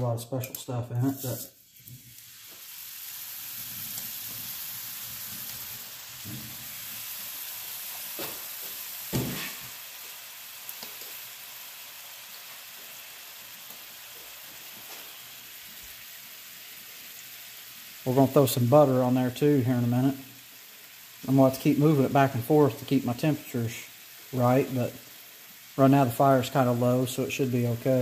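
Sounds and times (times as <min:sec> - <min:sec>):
steaks sizzling in skillet: 0:01.0 - 0:28.0
sharp knock: 0:09.1 - 0:09.6.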